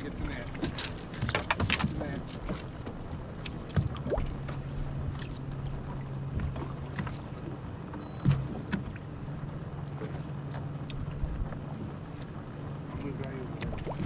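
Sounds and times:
clicks and knocks on boat: 0.0s - 9.1s, 10.0s - 14.0s
boat motor humming: 0.0s - 14.0s.

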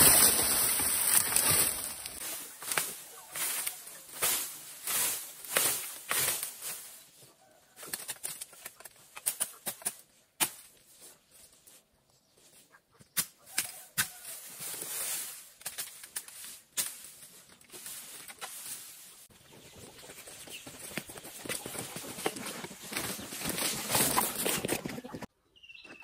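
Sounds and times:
bamboo cracking: 0.0s - 6.9s, 7.8s - 10.8s, 13.1s - 19.0s
bamboo leaves rustling: 0.0s - 11.8s, 13.4s - 25.2s.

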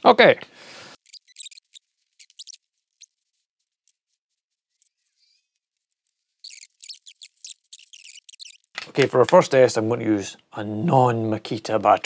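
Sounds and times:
faint clicks and rustles: 1.0s - 9.2s.

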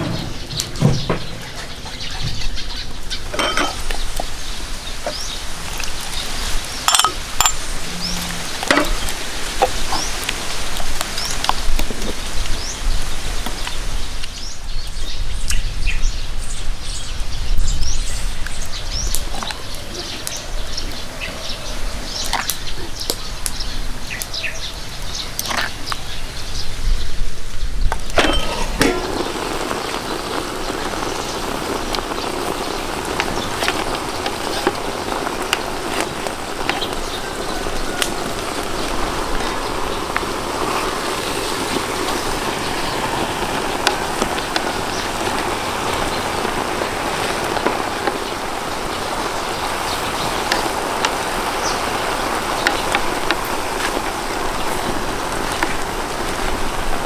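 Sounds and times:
food sizzling in hot oil: 0.0s - 14.2s, 27.9s - 57.0s.

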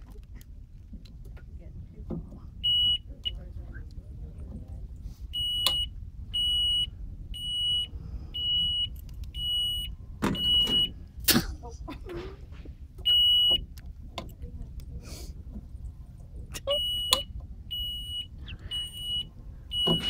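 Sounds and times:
reverse warning beeper: 5.3s - 11.0s, 13.0s - 13.6s, 16.7s - 20.0s.

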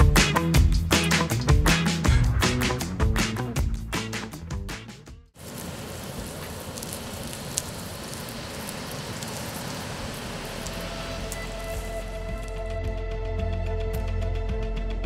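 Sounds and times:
meat sizzling on a grill: 5.4s - 12.5s.

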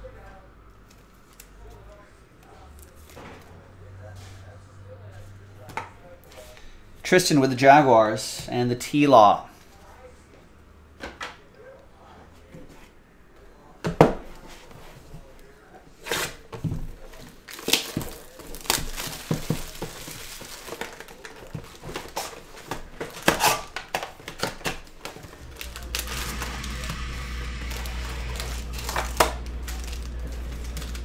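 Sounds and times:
plastic wrap crinkling and tearing: 17.3s - 31.0s.

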